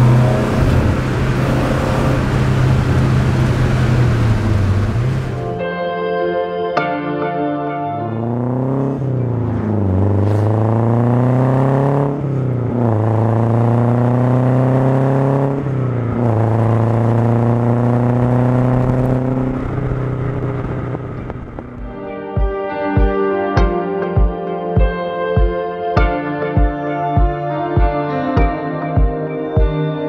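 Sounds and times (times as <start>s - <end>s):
car engine accelerating: 0.0s - 5.6s, 8.0s - 22.2s.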